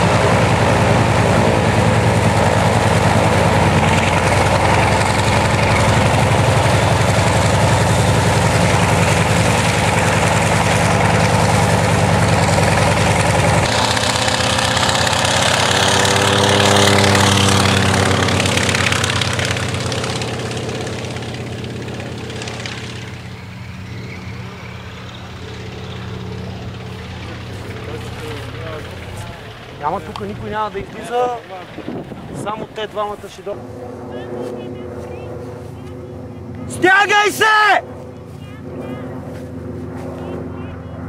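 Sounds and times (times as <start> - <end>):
radial engine and propeller running: 0.0 - 41.0.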